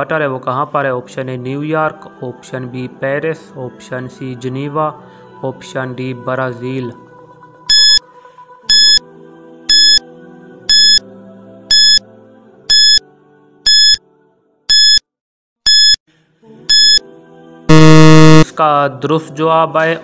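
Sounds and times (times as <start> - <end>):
soft background music: 0.0 - 14.6, 16.4 - 17.7, 18.5 - 20.0
timer short high beeps: 7.7 - 8.0, 8.7 - 9.0, 9.7 - 10.0, 10.7 - 11.0, 11.7 - 12.0, 12.7 - 13.0, 13.7 - 14.0, 14.7 - 15.0, 15.7 - 16.0, 16.7 - 17.0, 17.7 - 18.4.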